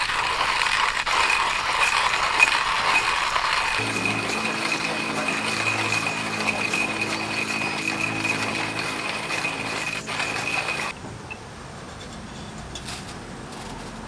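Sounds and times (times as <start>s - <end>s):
coffee grinder crunching beans: 0.0s - 10.9s
steady high tone: 1.8s - 11.0s.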